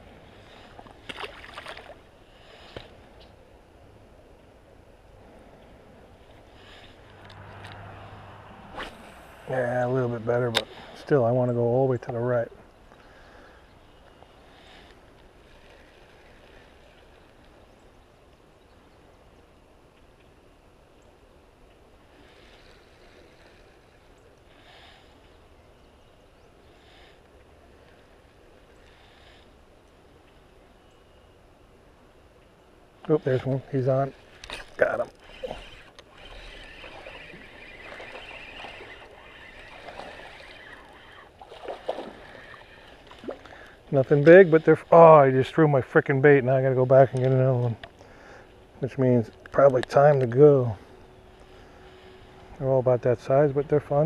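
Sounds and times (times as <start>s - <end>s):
faint outdoor background noise: 0.0s - 54.0s
fishing reel whirring: 34.3s - 43.2s
fish splashing at water surface: 36.2s - 43.7s.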